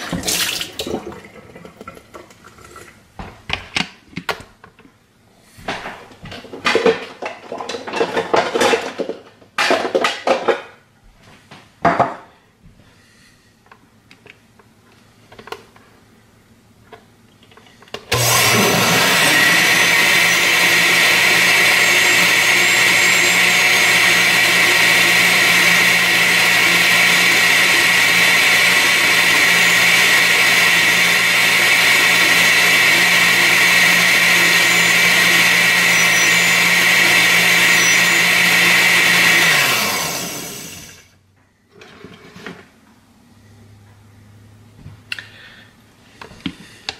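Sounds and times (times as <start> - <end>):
countertop blender running: 18.1 - 41.1.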